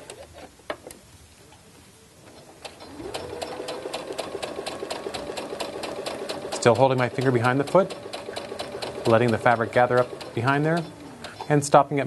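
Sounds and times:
needle ticking: 0:02.3 - 0:12.0
sewing machine motor whine: 0:02.8 - 0:11.4.

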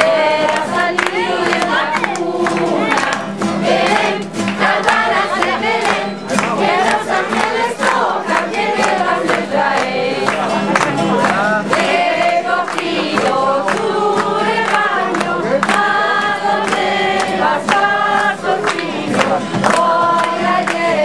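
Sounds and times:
group singing: 0:00.0 - 0:21.0
hands clapping: 0:00.0 - 0:21.0
strummed acoustic guitar: 0:00.0 - 0:21.0.

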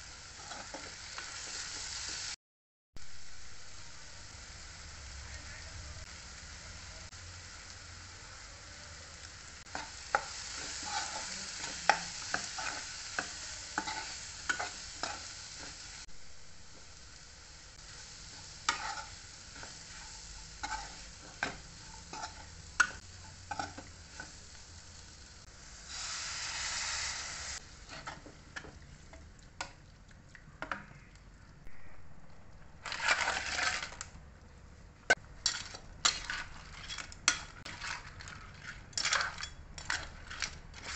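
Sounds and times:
food sizzling in frying pan: 0:00.0 - 0:02.4, 0:03.0 - 0:29.9
metal spoon scraping pan: 0:00.4 - 0:01.0, 0:09.7 - 0:15.8, 0:18.3 - 0:24.4, 0:27.8 - 0:28.8, 0:32.8 - 0:34.0, 0:35.4 - 0:40.9.

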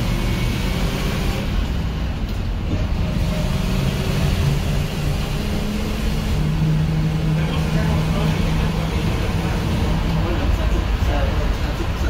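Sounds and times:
bus engine running: 0:00.0 - 0:12.0
road noise: 0:00.0 - 0:12.0.

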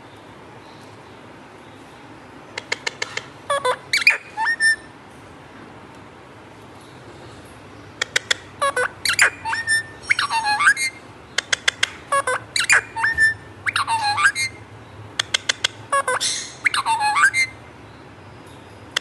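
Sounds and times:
parakeet calling: 0:02.5 - 0:05.0, 0:07.9 - 0:18.0.

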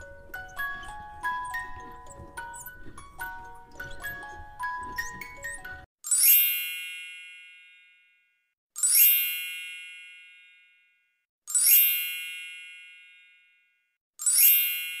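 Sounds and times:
bright bell-like chime: 0:06.1 - 0:15.0.

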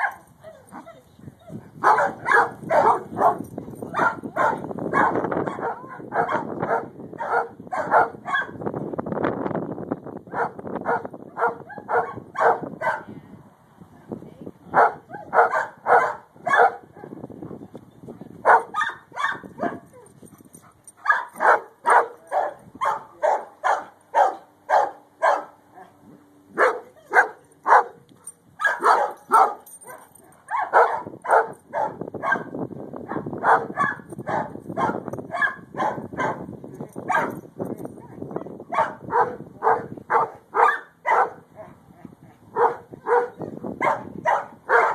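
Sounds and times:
dog barking: 0:01.8 - 0:08.6, 0:10.3 - 0:13.1, 0:14.8 - 0:17.1, 0:18.4 - 0:19.8, 0:21.0 - 0:25.9, 0:26.6 - 0:28.0, 0:28.6 - 0:36.5, 0:37.1 - 0:37.3, 0:38.3 - 0:41.8, 0:42.6 - 0:44.9.

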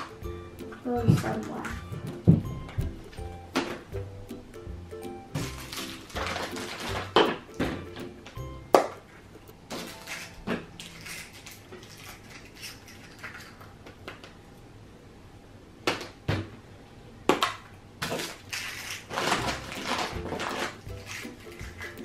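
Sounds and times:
rustling and clattering: 0:09.7 - 0:13.8, 0:18.1 - 0:22.0.

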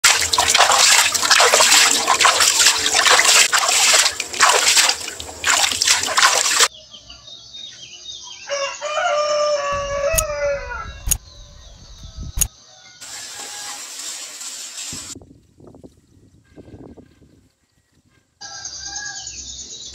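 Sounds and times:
rooster crowing: 0:08.3 - 0:14.0, 0:18.4 - 0:19.6
sharp clicks: 0:10.1 - 0:10.3, 0:11.0 - 0:11.2.

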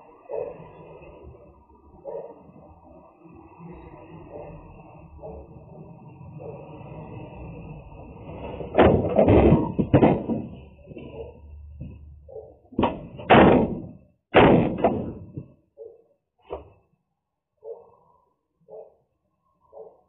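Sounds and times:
cardboard boxes knocking on metal floor: 0:08.8 - 0:10.6, 0:12.8 - 0:15.5.

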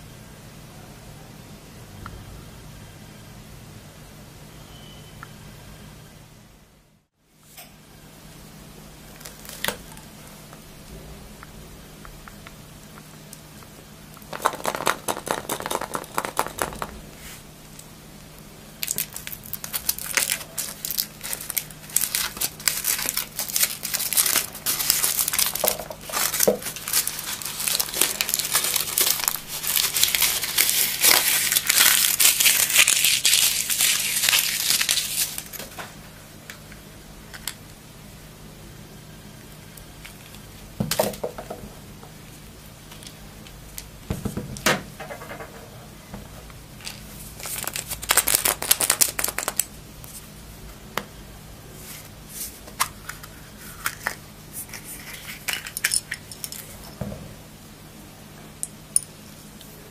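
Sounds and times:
foil wrapper crinkling: 0:09.2 - 0:09.9, 0:14.3 - 0:17.0, 0:18.8 - 0:35.7, 0:46.9 - 0:49.7.

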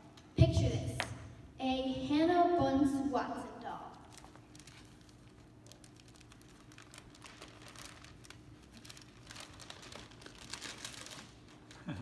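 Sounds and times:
paper sheet crinkling: 0:04.0 - 0:12.0.

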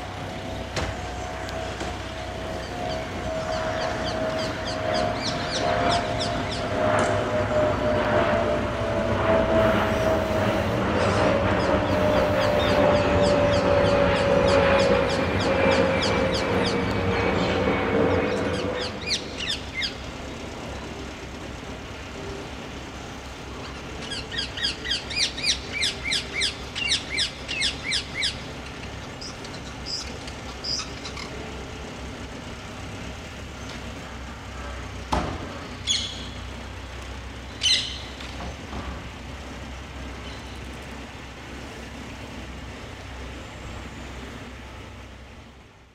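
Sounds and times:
louder vehicle: 0:00.0 - 0:45.9
low hum of city traffic: 0:00.0 - 0:45.9
parakeet harsh calls: 0:02.6 - 0:06.7, 0:18.5 - 0:20.0, 0:24.0 - 0:28.5, 0:29.2 - 0:31.4, 0:37.6 - 0:38.2.

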